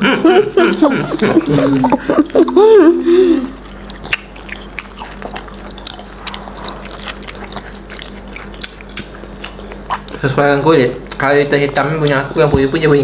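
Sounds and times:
faint steady hum: 0.0s - 13.0s
people chewing food: 0.0s - 13.0s
wet mouth clicks: 3.4s - 12.8s.

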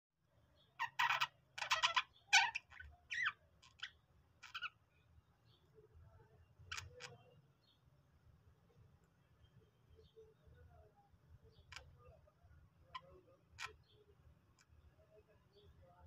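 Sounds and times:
budgerigars chirping: 0.8s - 4.8s.

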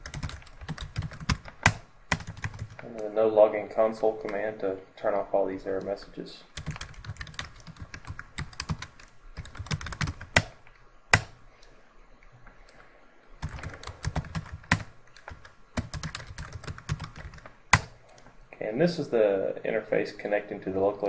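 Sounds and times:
typing on keyboard: 0.0s - 2.8s, 6.6s - 11.4s, 13.4s - 17.9s.

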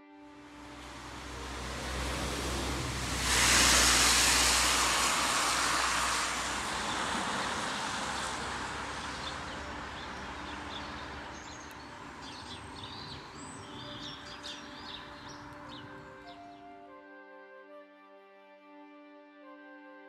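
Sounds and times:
car tyres hissing on wet road: 0.5s - 15.8s
birds chirping: 6.7s - 16.8s.

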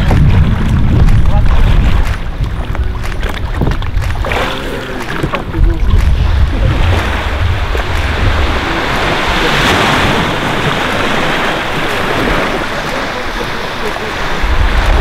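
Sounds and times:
small waves washing: 0.0s - 15.0s
wind buffeting microphone: 0.0s - 15.0s.

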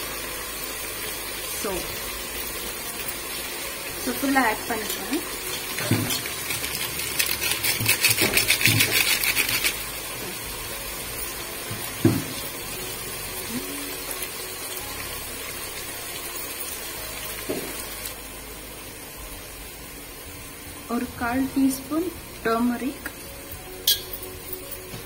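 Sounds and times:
paper packet crinkling rattle: 6.2s - 9.9s.

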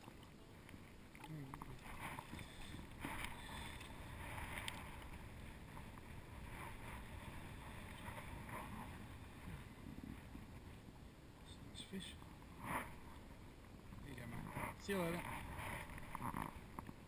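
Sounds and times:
water sloshing and splashing: 0.0s - 11.0s
wind rumble on microphone: 1.8s - 11.2s.

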